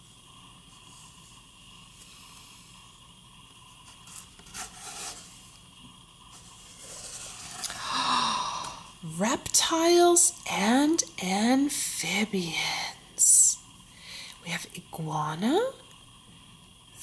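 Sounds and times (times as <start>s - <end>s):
hand scraping cardboard pages: 3.8s - 5.3s.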